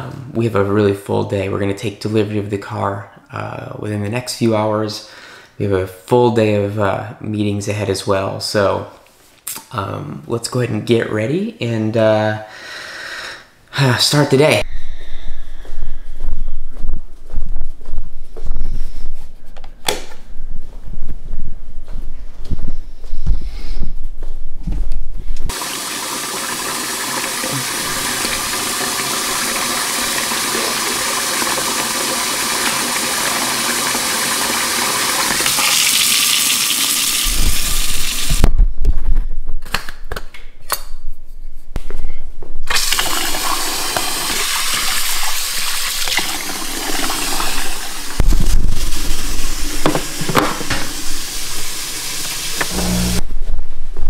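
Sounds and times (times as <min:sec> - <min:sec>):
water running from a tap: 0:25.5 - 0:38.4, 0:42.7 - 0:53.2.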